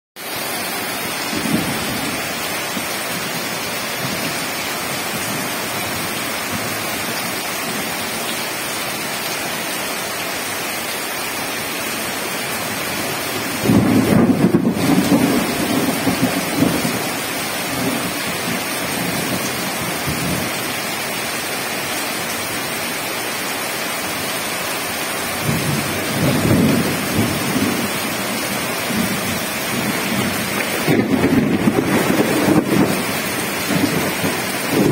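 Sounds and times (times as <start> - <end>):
heavy rain on wet ground: 0.2 - 34.9
thunder rumble: 1.1 - 5.8, 13.5 - 20.5, 25.4 - 34.9.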